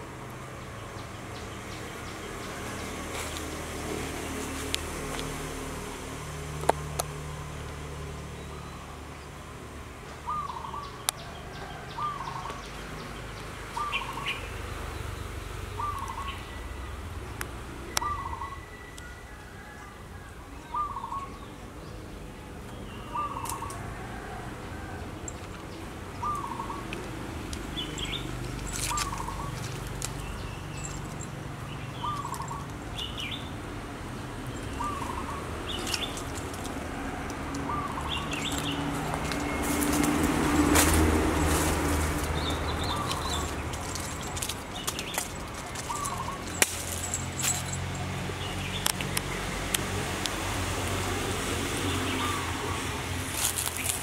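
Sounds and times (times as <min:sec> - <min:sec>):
birds calling: 0:10.1 - 0:19.0, 0:20.6 - 0:21.8, 0:22.6 - 0:49.9, 0:51.4 - 0:54.0.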